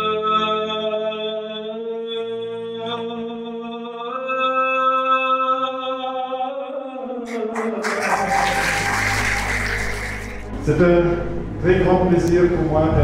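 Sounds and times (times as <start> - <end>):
man singing long notes: 3.4 - 8.9.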